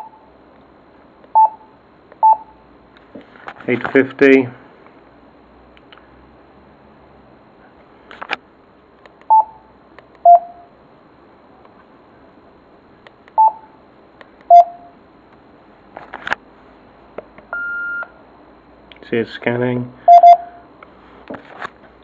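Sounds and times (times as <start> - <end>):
radio transceiver beeps: 20.1 - 20.5.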